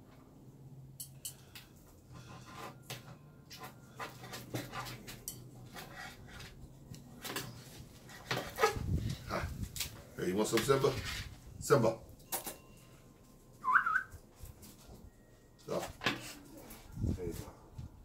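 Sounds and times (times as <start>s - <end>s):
cutlery scraping a pan: 2.1s - 6.6s.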